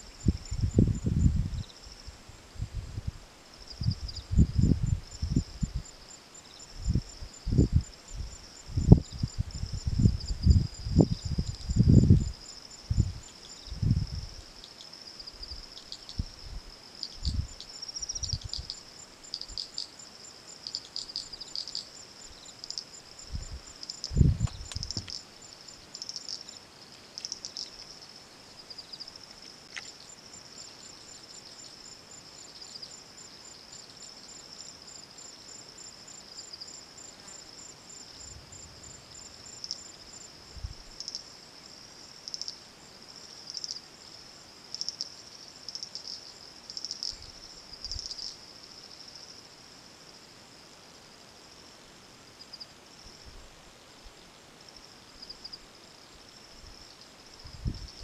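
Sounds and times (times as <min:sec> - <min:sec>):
high-pitched insect trilling: 0:00.0 - 0:02.1, 0:03.6 - 0:26.6, 0:27.2 - 0:42.6, 0:43.2 - 0:49.4
fast fine insect ticking: 0:23.4 - 0:26.6.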